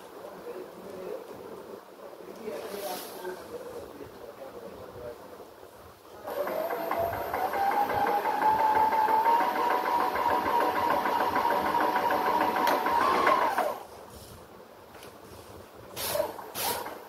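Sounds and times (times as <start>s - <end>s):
paint sprayer pump whining: 6.3s - 13.9s.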